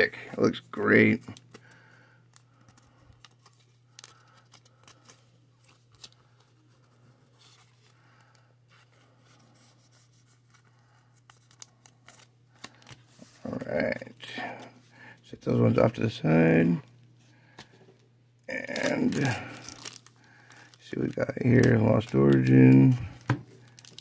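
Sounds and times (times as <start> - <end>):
low steady hum: 0.0 - 24.0
trading cards rustling and clicking: 1.0 - 13.4, 18.6 - 24.0.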